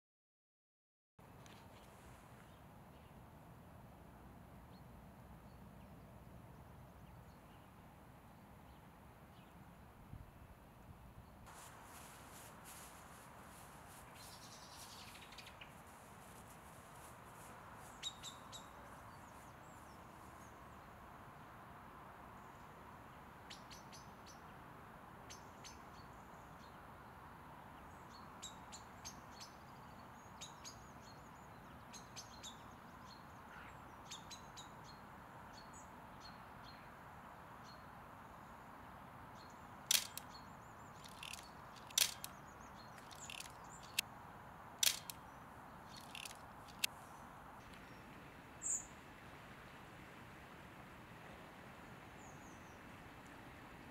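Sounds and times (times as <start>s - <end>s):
faint outdoor background: 1.2s - 53.9s
small birds chirping: 11.2s - 20.9s, 39.4s - 44.1s, 44.8s - 48.0s.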